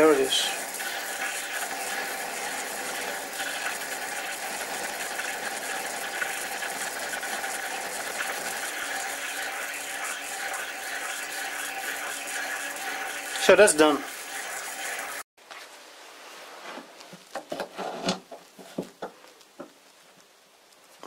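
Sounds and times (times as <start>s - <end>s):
metal lathe whirring: 0.0s - 15.2s.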